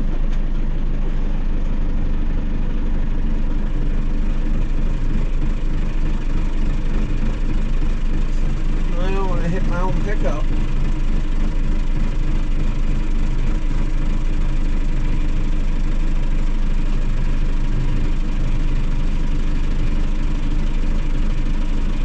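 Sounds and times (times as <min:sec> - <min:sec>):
engine idling: 0:00.0 - 0:22.0.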